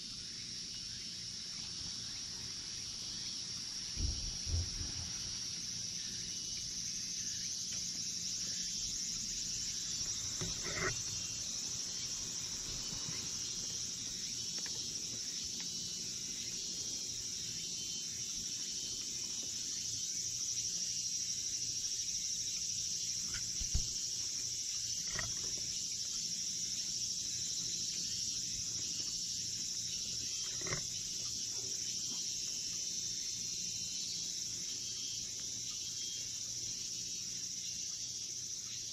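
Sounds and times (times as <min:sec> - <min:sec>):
insects droning in chorus: 0:00.0 - 0:38.9
short low thump: 0:04.0 - 0:05.1.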